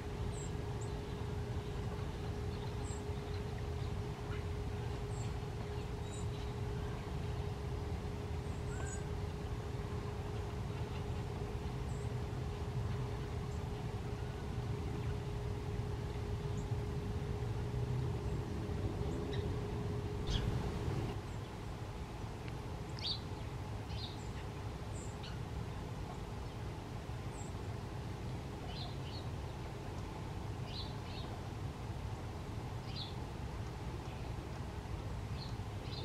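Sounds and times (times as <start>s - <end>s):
steady low rumble: 0.0s - 36.0s
songbird chip calls: 8.5s - 9.1s, 20.2s - 21.0s.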